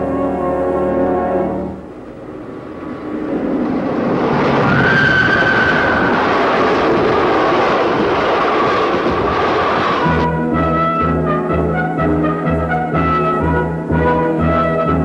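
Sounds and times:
train rumbling through tunnel: 0:00.0 - 0:10.4.

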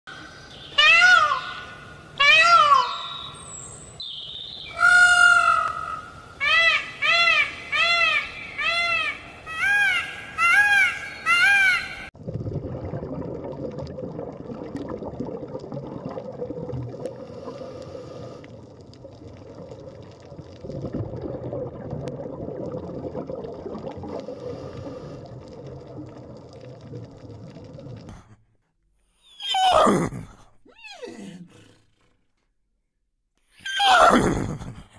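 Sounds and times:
peafowl calling: 0:00.6 - 0:03.5, 0:04.7 - 0:12.1
low underwater rushing: 0:12.1 - 0:28.2.

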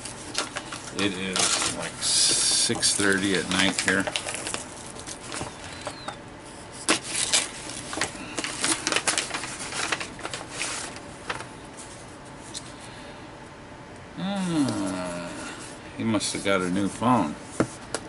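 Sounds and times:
paper packaging rustling: 0:00.0 - 0:06.2, 0:06.8 - 0:12.7.

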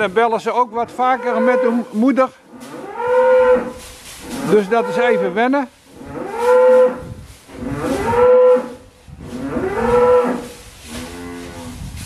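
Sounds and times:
cattle mooing: 0:01.0 - 0:01.9, 0:04.3 - 0:05.4, 0:09.4 - 0:11.8.

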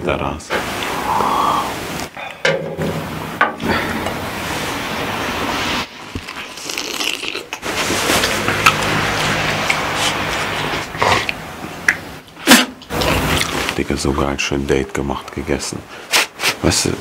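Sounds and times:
rustling and handling noise: 0:07.6 - 0:11.0
scraping and crinkling: 0:07.6 - 0:11.0.

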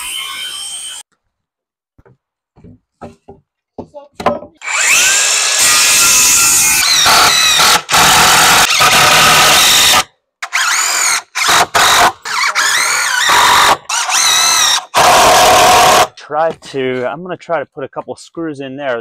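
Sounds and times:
cordless drill driving screws: 0:04.6 - 0:16.1.

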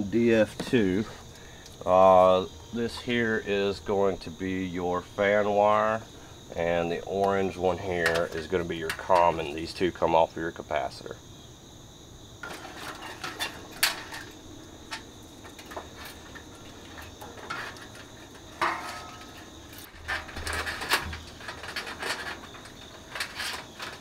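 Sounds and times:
cricket trill: 0:00.0 - 0:24.0
metal fan guard clattering: 0:06.6 - 0:10.2, 0:12.4 - 0:24.0.

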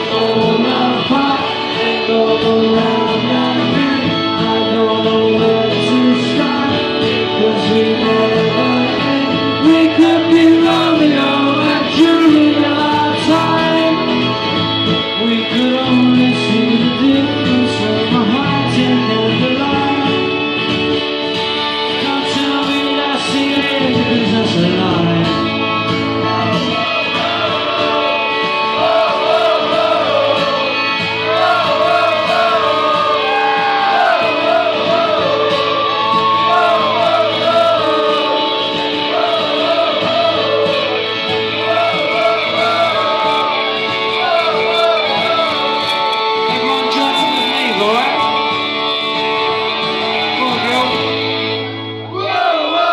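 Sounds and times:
person singing: 0:00.0 - 0:20.5, 0:21.7 - 0:52.9
guitars playing: 0:00.0 - 0:52.9.

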